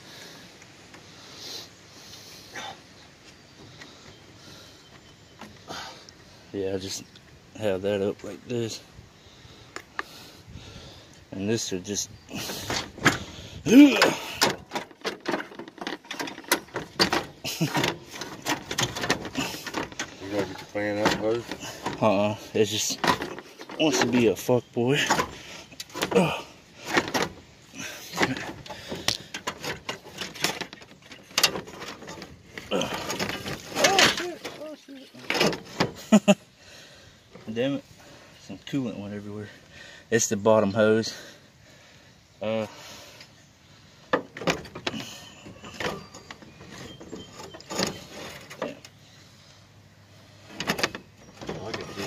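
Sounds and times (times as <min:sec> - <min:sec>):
quiet rattling: 0:10.0 - 0:41.9, 0:42.6 - 0:52.0
knocks and scrapes on hoses: 0:12.3 - 0:36.2, 0:44.1 - 0:49.0, 0:50.4 - 0:52.0
sharp clunks: 0:12.4 - 0:24.3
knocks of tools and parts: 0:13.9 - 0:22.2, 0:22.8 - 0:24.3.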